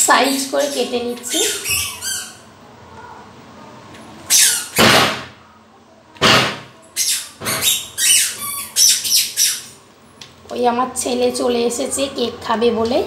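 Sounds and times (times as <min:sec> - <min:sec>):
bird squawking: 0:00.6 - 0:02.5, 0:04.3 - 0:04.8, 0:07.0 - 0:09.8.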